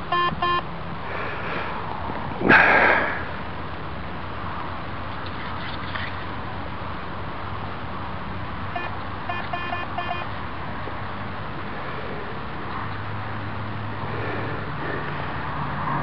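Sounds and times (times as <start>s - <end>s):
metal detector short beeps: 0.1s - 0.6s, 8.8s - 10.3s.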